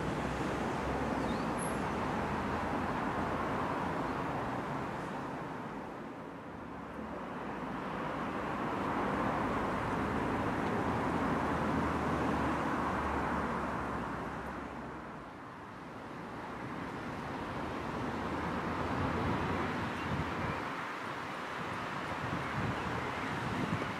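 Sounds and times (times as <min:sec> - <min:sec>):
road vehicle passing: 0:06.7 - 0:15.3, 0:16.2 - 0:23.9.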